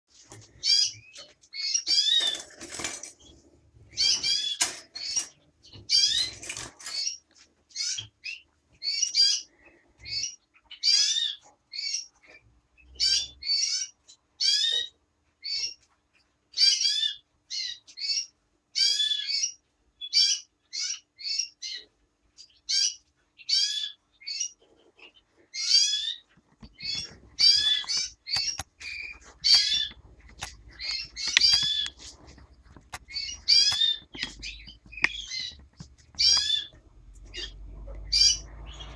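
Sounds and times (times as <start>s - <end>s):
finch chirping: 0.5s - 2.6s, 3.2s - 15.8s, 16.5s - 38.9s
soft rustle: 26.2s - 38.9s.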